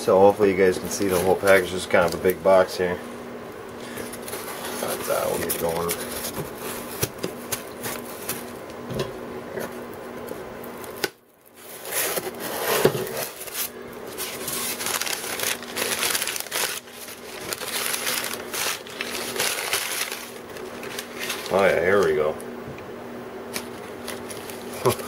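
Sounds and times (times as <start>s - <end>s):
packing paper rustling: 0.6s - 2.6s, 3.8s - 8.7s, 10.7s - 22.4s, 23.5s - 25.0s
cardboard and foam scraping: 3.8s - 8.5s, 11.6s - 21.7s.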